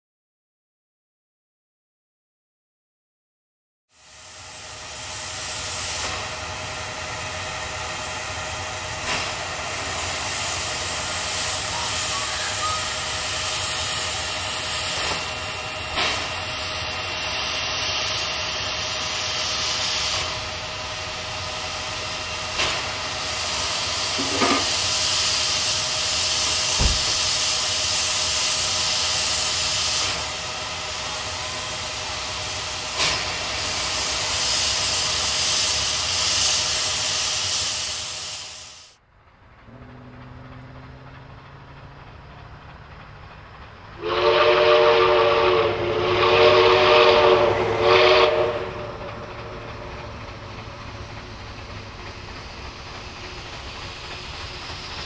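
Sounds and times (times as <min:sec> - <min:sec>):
steam hissing: 0:04.0 - 0:39.0, 0:39.9 - 0:55.0
distant engine low rumble: 0:39.0 - 0:45.4.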